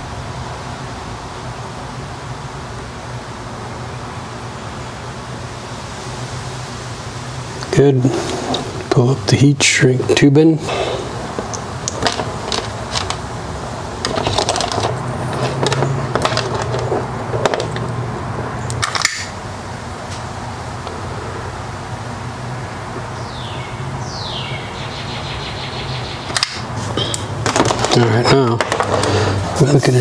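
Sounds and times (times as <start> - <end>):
steady low hum: 0.0 - 30.0
wires rustling and clicking: 11.3 - 13.3, 14.0 - 18.0, 26.3 - 29.4.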